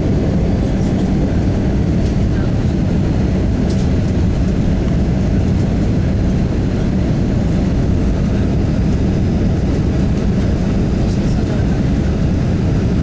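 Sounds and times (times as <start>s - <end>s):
aircraft engines rumbling: 0.0s - 13.0s.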